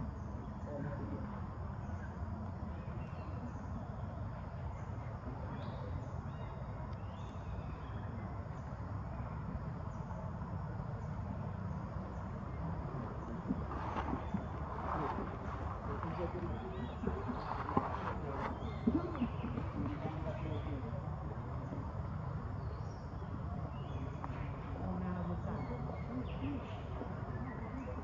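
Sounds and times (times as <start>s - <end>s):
low rumble: 8.5s - 27.3s.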